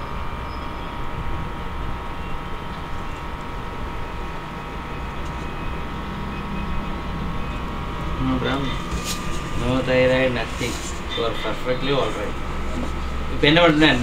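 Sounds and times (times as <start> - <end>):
high whining tones: 0.0 - 14.0
low mechanical rumble: 0.0 - 14.0.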